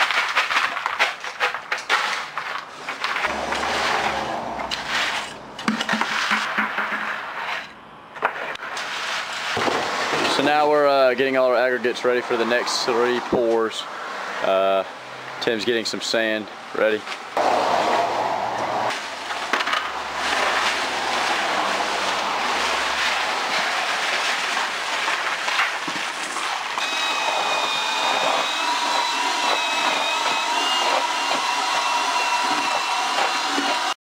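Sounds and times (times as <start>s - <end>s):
sand and gravel pouring into bucket: 20.0s - 26.8s.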